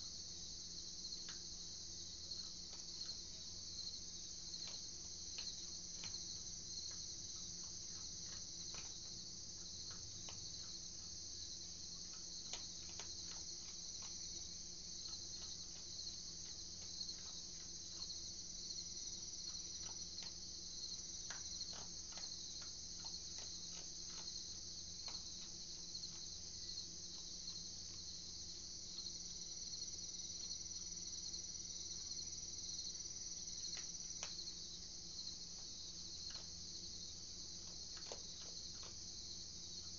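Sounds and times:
crickets chirping: 0:00.0 - 0:39.9
faint low hum: 0:00.0 - 0:39.9
animal crunching dry food: 0:04.4 - 0:29.1, 0:35.4 - 0:39.9.

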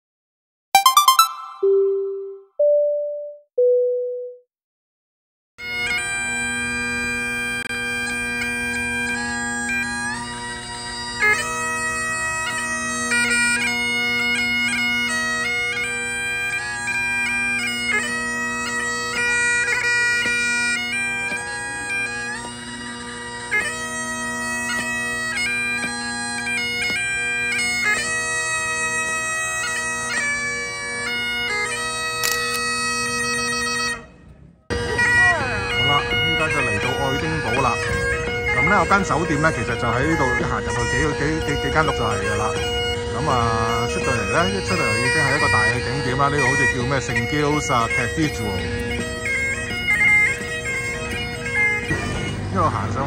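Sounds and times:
bagpipe playing a tune: 0:00.8 - 0:02.8, 0:05.6 - 0:34.0, 0:34.7 - 0:53.0
short falling tones: 0:00.8 - 0:04.4.

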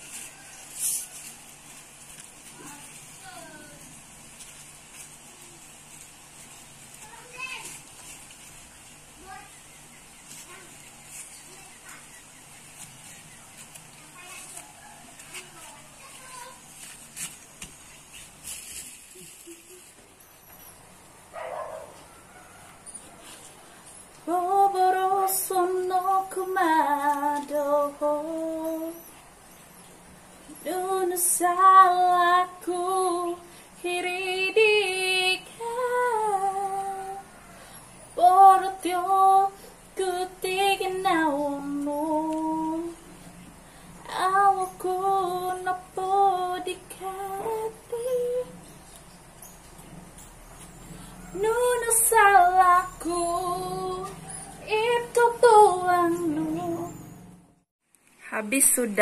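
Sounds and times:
woman singing unaccompanied: 0:24.2 - 0:29.2, 0:30.5 - 0:37.3, 0:38.1 - 0:43.2, 0:44.0 - 0:48.8, 0:51.3 - 0:57.2.

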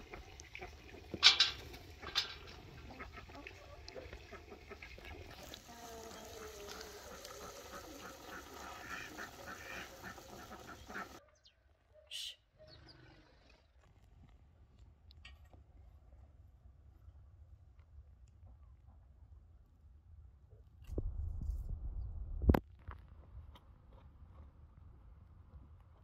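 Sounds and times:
ducks quacking: 0:00.0 - 0:11.2.

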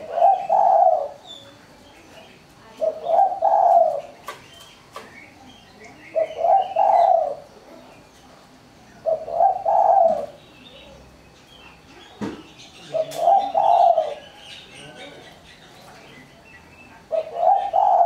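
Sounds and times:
dove cooing: 0:00.0 - 0:01.3, 0:02.7 - 0:04.4, 0:06.0 - 0:07.6, 0:09.0 - 0:11.0, 0:12.3 - 0:15.8, 0:17.0 - 0:18.0.

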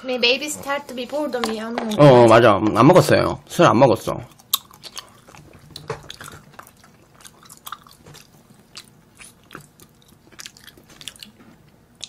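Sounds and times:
close chewing and mouth sounds: 0:01.5 - 0:02.8, 0:04.2 - 0:12.0.

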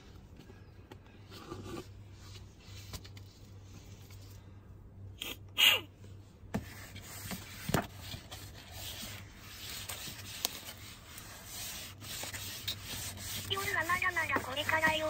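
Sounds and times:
paper towel scuffing cutting board: 0:06.6 - 0:15.0.

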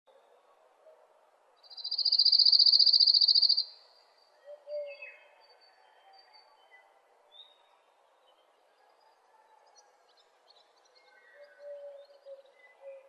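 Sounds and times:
faint bird calls: 0:01.7 - 0:03.7.

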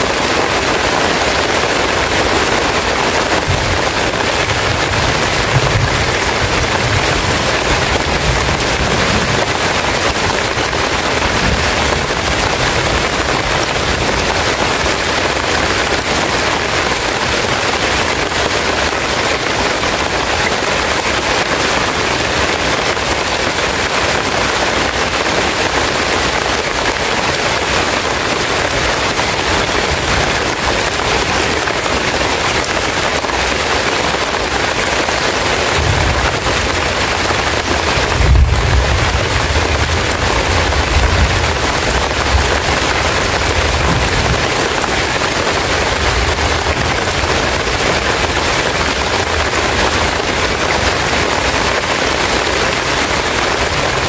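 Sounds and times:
heavy rain on leaves: 0:00.0 - 0:54.0.

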